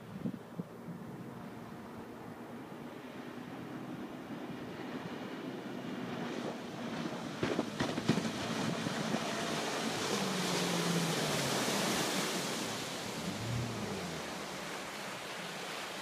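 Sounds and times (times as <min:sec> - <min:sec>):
boat engine drone: 0:00.0 - 0:16.0.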